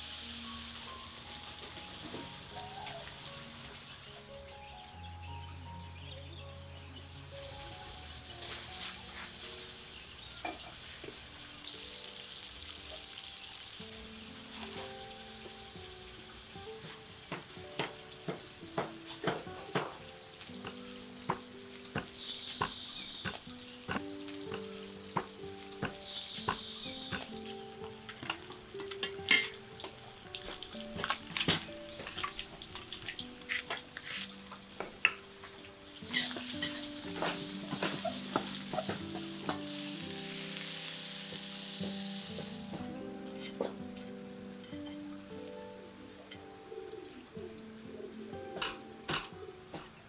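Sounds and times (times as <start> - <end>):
food sizzling in hot oil: 0.0 - 4.9, 7.0 - 45.3
soft background music: 0.0 - 50.0
metal spatula scraping a wok: 33.4 - 34.4, 36.0 - 42.5.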